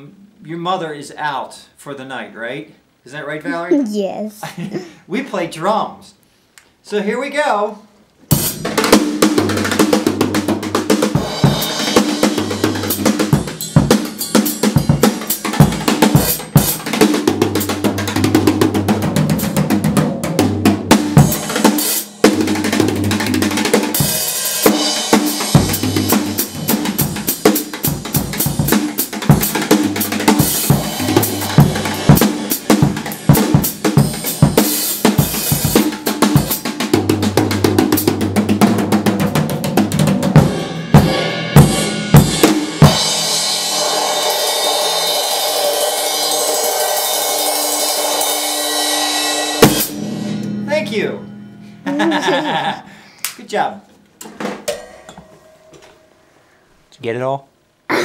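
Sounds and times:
drum kit solo: 0:08.3 - 0:52.7.

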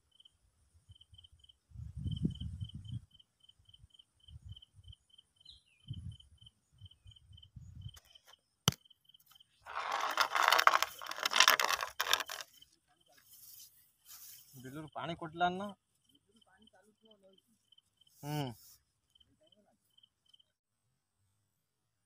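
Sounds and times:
cricket chirping: 0:00.0 - 0:13.5, 0:14.2 - 0:20.6
grass rustling against fishing rod: 0:09.6 - 0:14.7.

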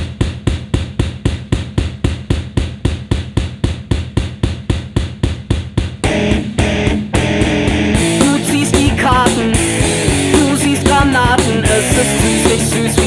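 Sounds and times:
driving drum beat: 0:00.0 - 0:13.0
low bass notes: 0:06.0 - 0:13.0
punk rock band with distorted guitar: 0:06.0 - 0:13.0.

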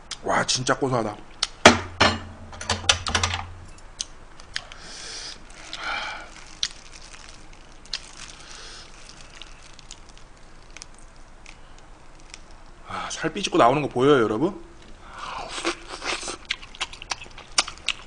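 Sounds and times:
soft rustle: 0:05.3 - 0:12.6.

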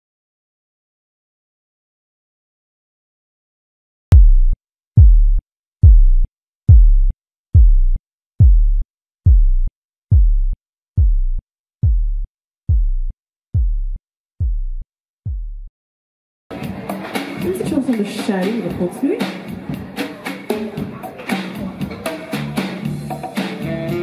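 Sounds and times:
deep electronic bass pulse: 0:04.1 - 0:15.7.

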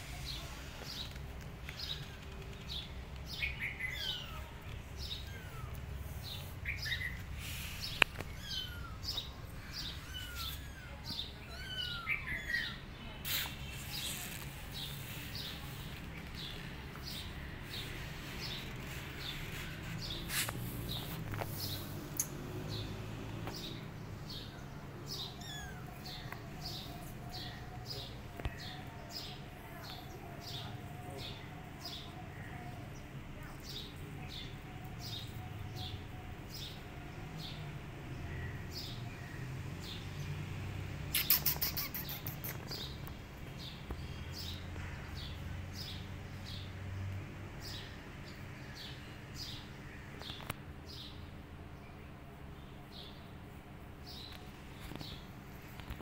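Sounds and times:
small bird chirping: 0:00.1 - 0:32.6, 0:41.0 - 0:44.7.

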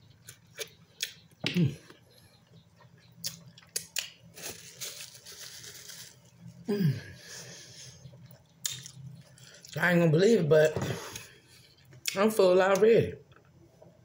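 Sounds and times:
breathing: 0:07.1 - 0:08.0.

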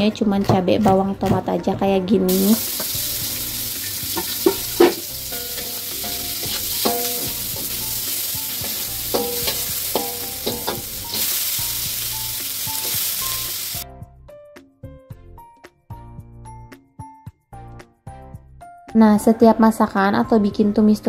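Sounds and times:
vegetables sizzling in hot oil: 0:02.3 - 0:13.8
metal spatula scraping a wok: 0:02.8 - 0:13.8.

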